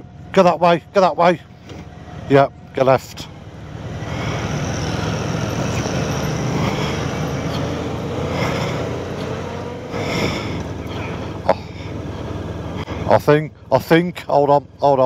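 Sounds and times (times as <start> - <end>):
motorcycle engine: 0.0 - 15.0
road noise: 0.0 - 15.0.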